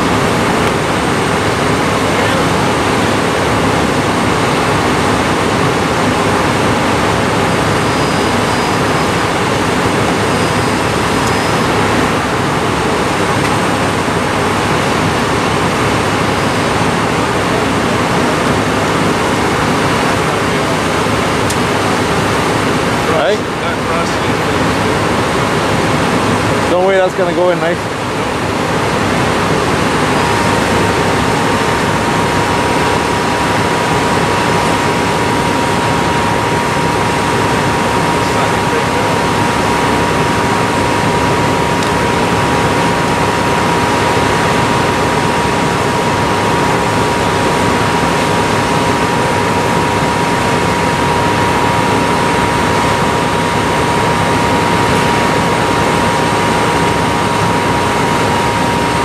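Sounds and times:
steady high whine: 0.0s - 59.0s.

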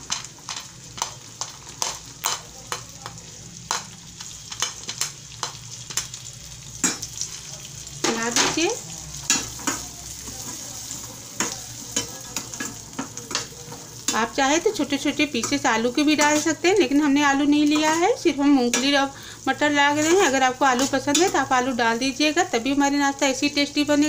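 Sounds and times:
peas sizzling in hot oil: 0.0s - 24.0s
metal spoon scraping pan: 15.3s - 16.6s, 19.9s - 21.5s.

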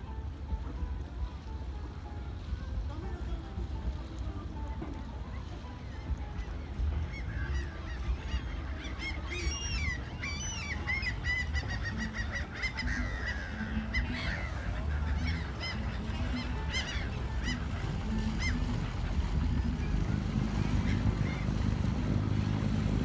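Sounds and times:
flock of birds calling: 5.8s - 23.0s
low steady rumble: 14.2s - 23.0s.

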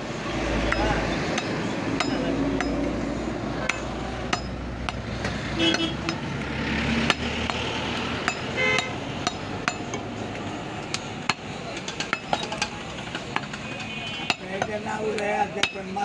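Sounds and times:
market background noise: 0.0s - 16.0s
knives knocking on wooden block: 10.8s - 15.8s.

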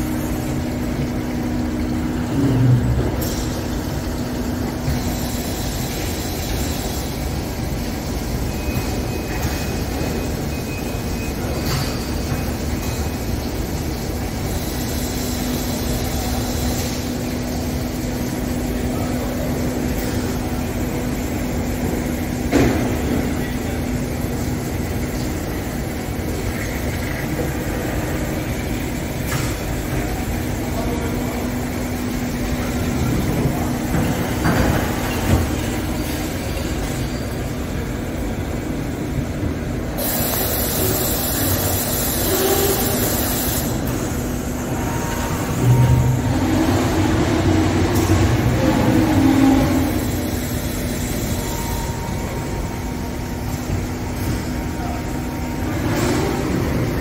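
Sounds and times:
coolant spray hissing and splashing: 0.0s - 45.1s, 47.4s - 54.4s
milling machine spindle hum: 0.0s - 57.0s.

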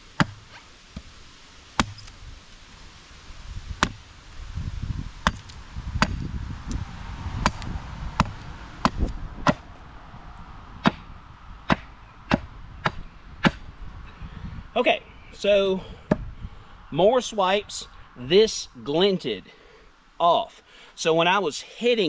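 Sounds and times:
hatchet chopping wood: 0.1s - 1.1s, 1.8s - 2.1s, 3.8s - 4.0s, 5.2s - 6.3s, 7.4s - 9.7s, 10.8s - 13.7s, 16.1s - 16.3s
blows glancing off wood: 5.0s - 9.9s, 10.8s - 13.8s.

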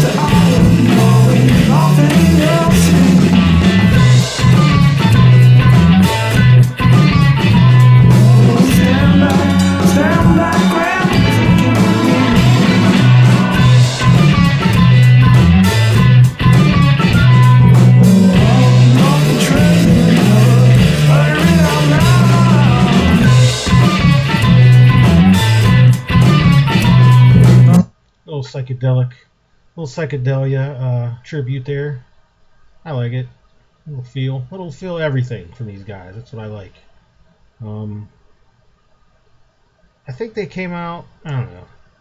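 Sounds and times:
bass line: 0.0s - 27.9s
drums: 0.0s - 27.9s
electric guitar: 0.0s - 27.9s.

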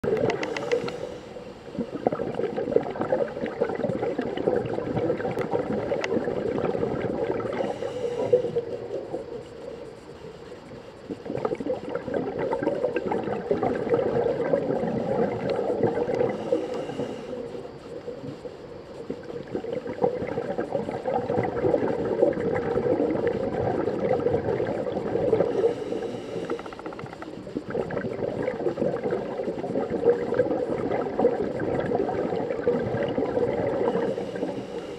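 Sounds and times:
regulator inhalation hiss: 0.3s - 2.0s, 7.4s - 11.3s, 15.7s - 19.5s, 25.2s - 27.6s, 33.7s - 34.9s
bubbling exhalation underwater: 1.8s - 9.3s, 11.2s - 17.5s, 19.1s - 26.1s, 27.5s - 34.6s.

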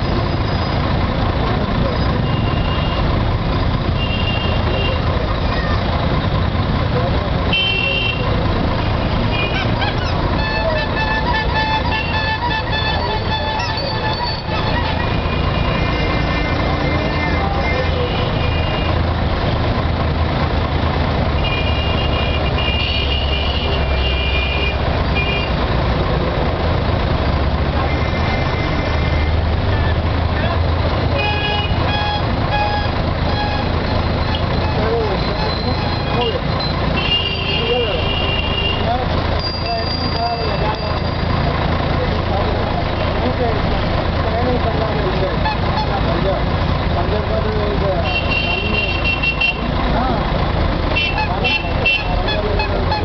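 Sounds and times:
traffic engines din: 0.0s - 53.0s
vehicle horns tooting: 2.1s - 3.2s, 3.8s - 5.1s, 7.5s - 19.0s, 21.4s - 25.6s, 27.8s - 30.0s, 31.1s - 41.3s, 45.4s - 46.2s, 48.0s - 49.7s, 51.0s - 53.0s.

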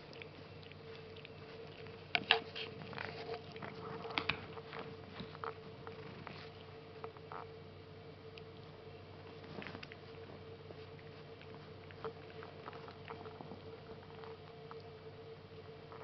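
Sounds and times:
kittens scuffling: 0.0s - 7.3s
steady faint hum: 0.0s - 16.0s.

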